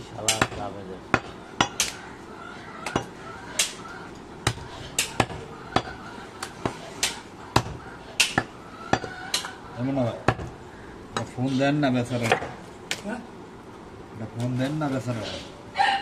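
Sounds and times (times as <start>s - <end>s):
cleaver chopping on wooden block: 4.4s - 9.5s.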